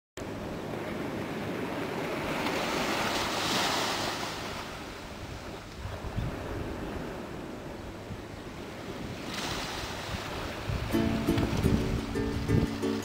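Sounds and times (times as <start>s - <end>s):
ocean waves breaking on beach: 0.2s - 13.0s
wind buffeting microphone: 4.8s - 13.0s.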